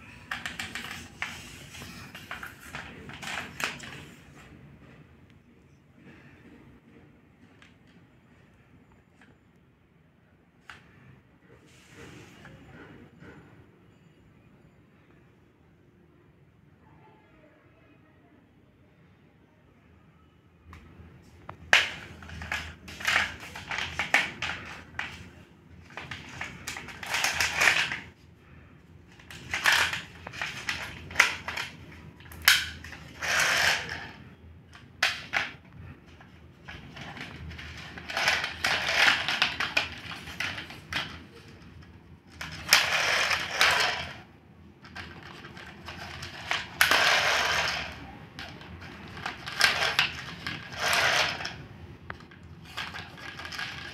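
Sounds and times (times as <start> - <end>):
plastic toy clicks and scraping: 0.0 - 4.3, 21.4 - 28.2, 29.0 - 53.9.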